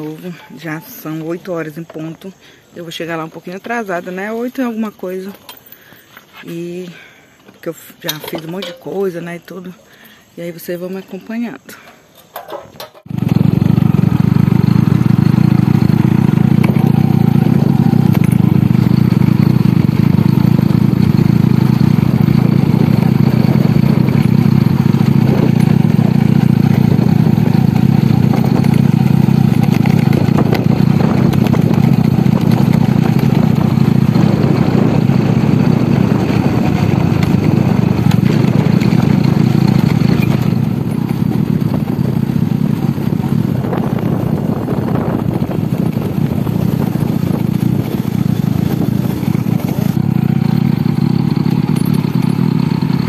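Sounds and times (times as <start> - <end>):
motorcycle engine running: 12.3 - 53.0.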